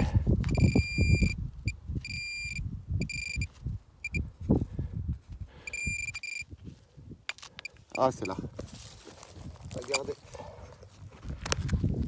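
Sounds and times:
metal detector beeping: 0.4s - 4.3s, 5.6s - 6.6s, 7.3s - 8.4s, 9.8s - 10.2s.

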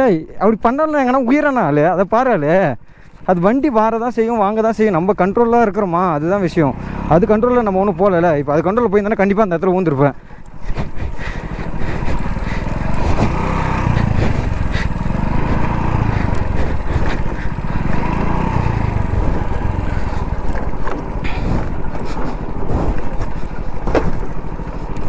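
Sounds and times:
motorcycle engine rumbling: 0.5s - 25.0s
motorcycle knocking over stones: 23.7s - 24.6s.

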